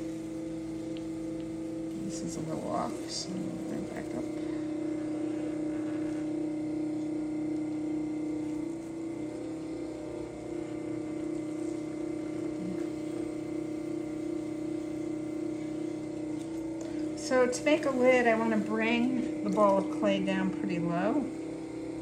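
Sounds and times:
potter's wheel motor humming: 0.0 - 22.0.

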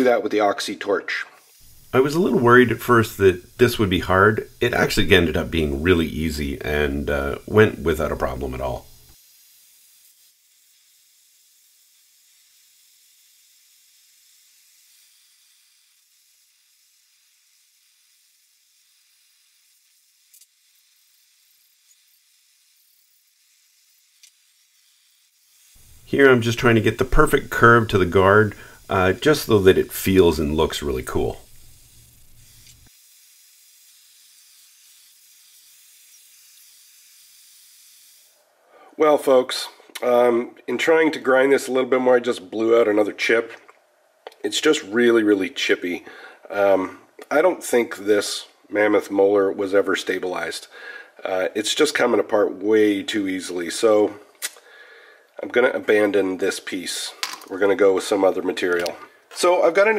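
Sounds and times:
torch flame hissing: 1.4 - 38.4.

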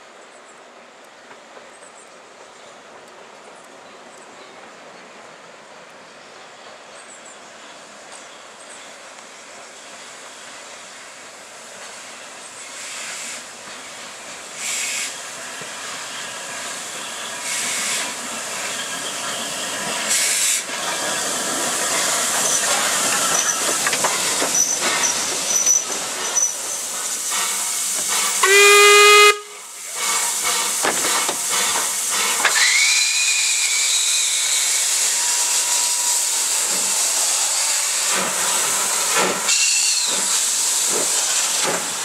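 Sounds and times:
steam locomotive hissing and running: 1.2 - 42.0
steam whistle blast: 28.1 - 30.3, 32.5 - 36.2, 39.5 - 40.2.

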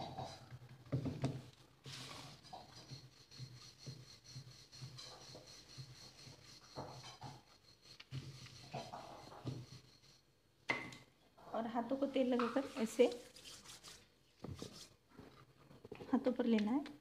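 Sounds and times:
hands rubbing dough on board: 1.8 - 10.2, 12.6 - 15.0.

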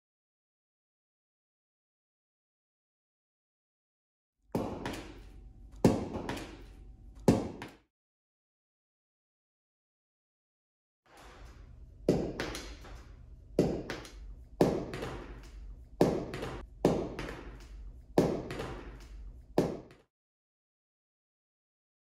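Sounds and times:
low steady hum: 4.6 - 7.6, 11.2 - 19.9
baseball smacking floor and glove: 4.6 - 7.8, 12.0 - 20.0
soft ball taps: 13.6 - 19.9.

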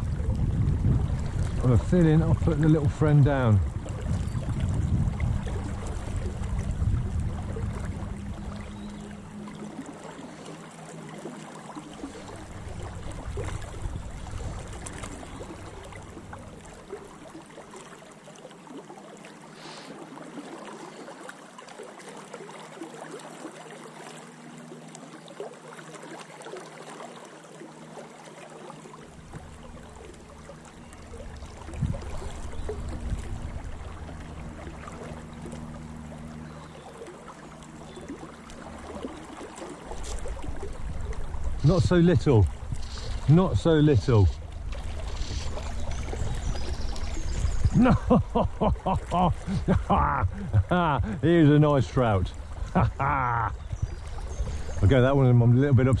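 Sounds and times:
low rumble: 0.0 - 9.7, 40.5 - 55.0
river flowing and gurgling: 0.0 - 56.0.

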